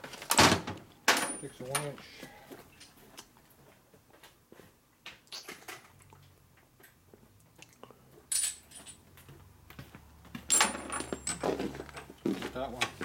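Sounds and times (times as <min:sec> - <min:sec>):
metal tools clinking and rattling: 0:01.1 - 0:02.0, 0:08.3 - 0:09.0, 0:10.5 - 0:12.2.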